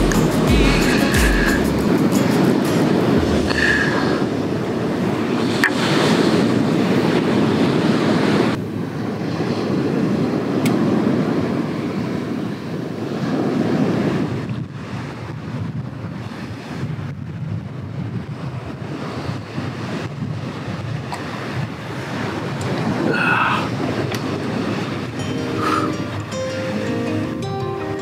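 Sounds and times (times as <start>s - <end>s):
wind on microphone: 0.0s - 27.6s
sea surf washing ashore: 0.0s - 28.0s.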